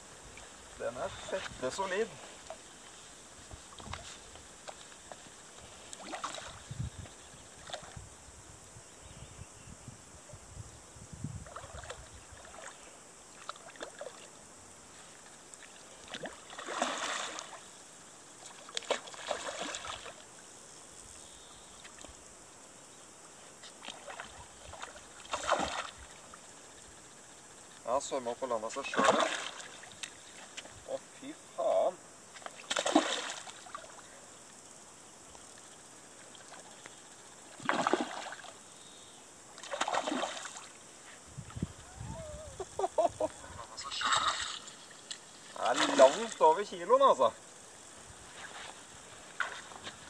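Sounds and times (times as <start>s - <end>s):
water splashing and sloshing: 0.3s - 8.0s, 11.4s - 17.8s, 18.4s - 20.4s, 23.6s - 26.6s, 28.7s - 30.8s, 32.3s - 34.1s, 36.1s - 38.6s, 39.5s - 41.6s, 43.5s - 46.7s, 47.8s - 50.0s
running water: 15.1s - 20.5s, 39.5s - 47.5s.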